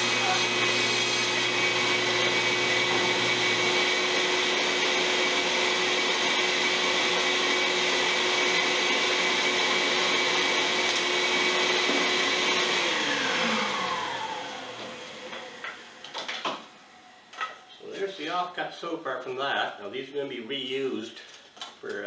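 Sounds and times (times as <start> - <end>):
bandsaw running: 0.0 - 16.3.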